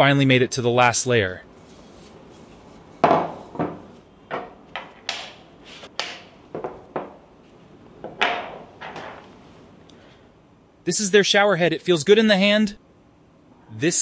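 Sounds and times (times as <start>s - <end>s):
objects knocking on wooden table: 3.0s - 5.4s, 6.0s - 7.2s, 8.0s - 9.2s.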